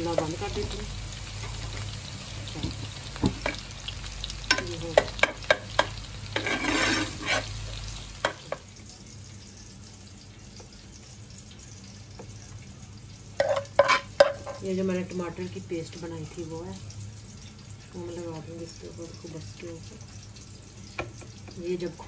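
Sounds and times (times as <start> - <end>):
spoon scraping sauce in a pan: 5.1 - 7.6, 13.4 - 14.6.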